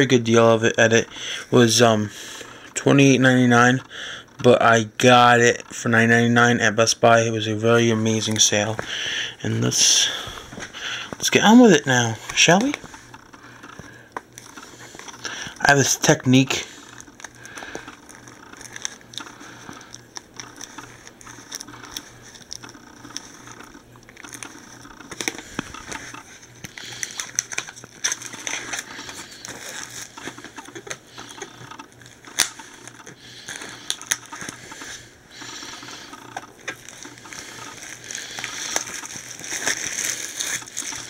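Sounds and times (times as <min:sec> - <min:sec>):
fingers tearing plastic shrink wrap: 0:12.3 - 0:41.0.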